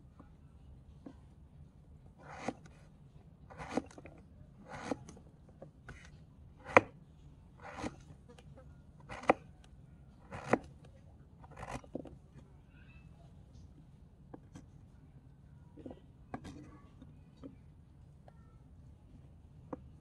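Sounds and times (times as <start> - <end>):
knife slicing vegetable: 2.2 - 2.7, 3.5 - 5.2, 5.9 - 7.0, 7.6 - 8.0, 9.0 - 9.4, 10.2 - 10.7.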